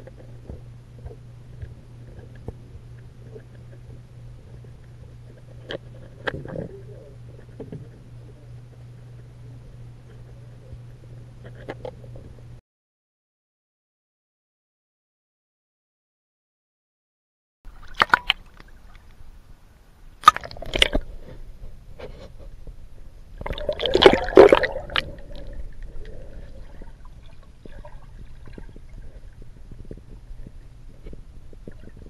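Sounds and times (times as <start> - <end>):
muffled underwater hum: 0.0 - 12.6, 17.7 - 32.0
pool water sloshing and splashing: 17.7 - 19.2, 23.4 - 25.6.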